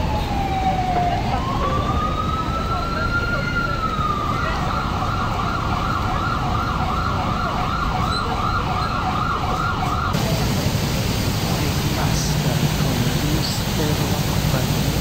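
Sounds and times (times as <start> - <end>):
emergency siren yelping: 0.0 - 14.9.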